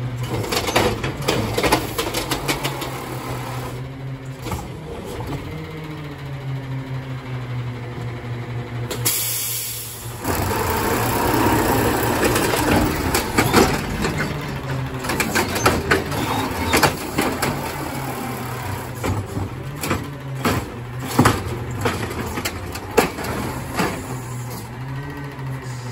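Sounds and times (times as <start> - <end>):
garbage truck engine hum: 0.0 - 25.9
recyclables clattering into truck: 0.2 - 3.6, 10.2 - 24.8.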